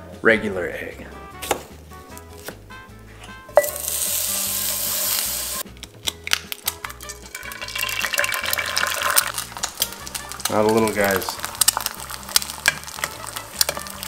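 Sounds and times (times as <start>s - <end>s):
butter sizzling in a skillet: 3.6s - 5.6s, 6.6s - 14.0s
egg sizzling in butter: 3.6s - 5.6s, 6.2s - 14.0s.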